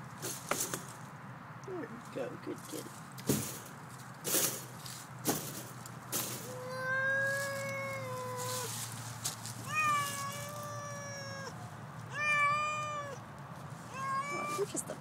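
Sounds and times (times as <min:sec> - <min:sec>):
cat yowling: 0:06.4 - 0:08.8, 0:09.6 - 0:13.2, 0:13.9 - 0:14.7.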